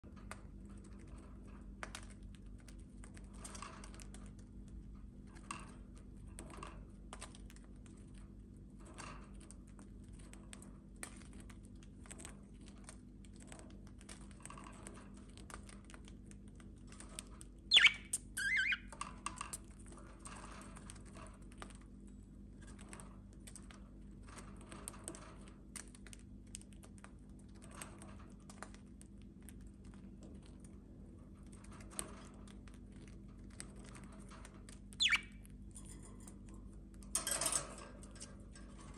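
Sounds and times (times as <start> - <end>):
beaks pecking mineral block: 17.3 - 19.6, 35.0 - 35.5
budgie chirping: 17.7 - 18.9, 35.0 - 35.4.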